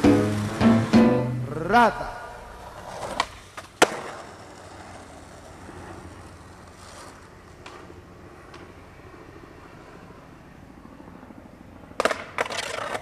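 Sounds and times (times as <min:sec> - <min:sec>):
skateboard landing clack: 0:00.0 - 0:01.4, 0:02.8 - 0:04.6, 0:12.0 - 0:13.0
skateboard wheels rolling on pavement: 0:00.0 - 0:13.0.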